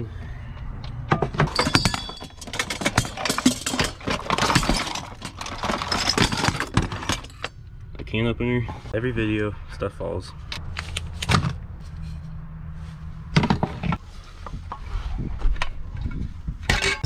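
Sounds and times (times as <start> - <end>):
metal pots and pans clattering: 1.1 - 7.5, 16.6 - 17.0.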